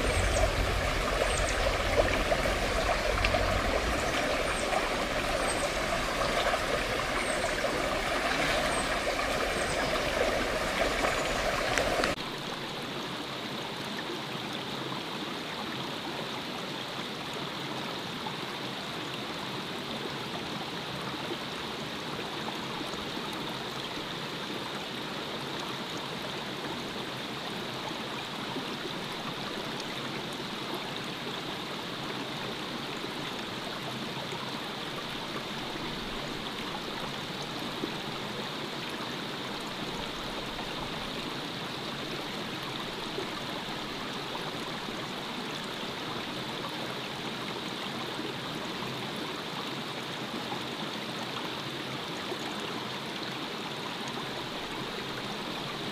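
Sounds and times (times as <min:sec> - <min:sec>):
stream flowing over stones: 0:00.0 - 0:55.9.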